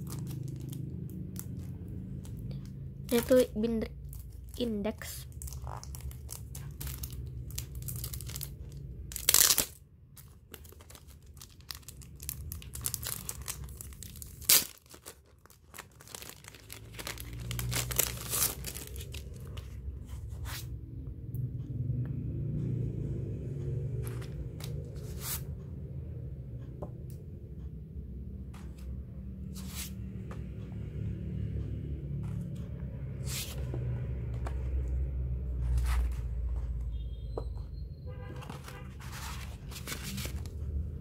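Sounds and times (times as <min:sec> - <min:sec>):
plastic sleeve crinkling: 0:00.0 - 0:19.6, 0:38.4 - 0:40.8.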